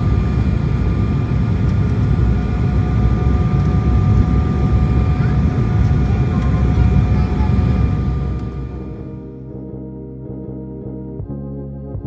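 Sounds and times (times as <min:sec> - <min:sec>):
faint whining tones: 0:00.0 - 0:09.4
deep rush of airflow and engines: 0:00.0 - 0:09.5.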